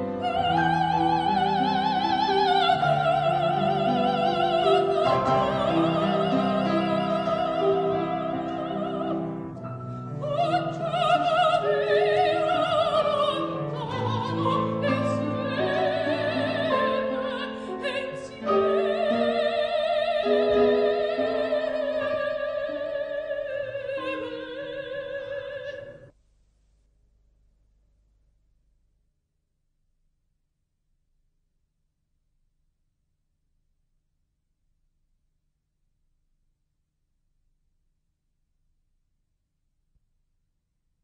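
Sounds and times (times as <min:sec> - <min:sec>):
soprano singing with vibrato: 0:00.0 - 0:26.1.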